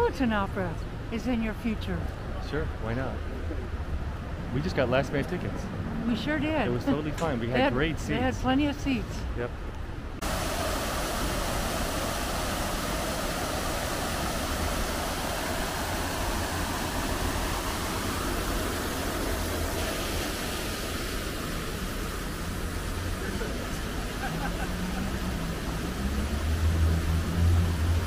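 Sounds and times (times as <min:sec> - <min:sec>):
fountain water splashing: 0:10.2 - 0:28.0.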